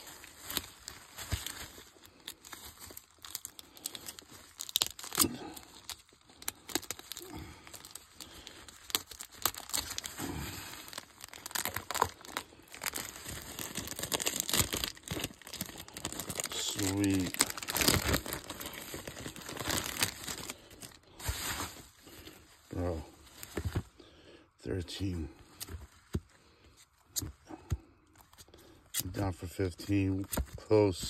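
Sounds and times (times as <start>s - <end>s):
bubble wrap crinkling: 0.0s - 24.0s.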